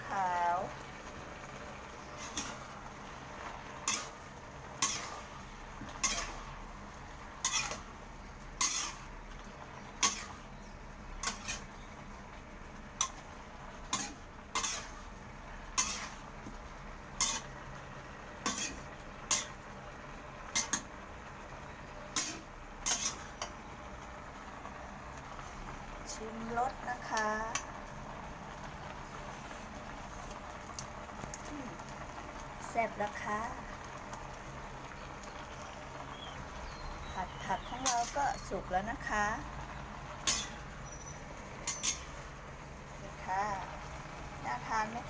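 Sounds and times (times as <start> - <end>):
spatula scraping a wok: 1.9 - 21.0, 22.1 - 23.6, 37.2 - 39.1, 40.2 - 42.4.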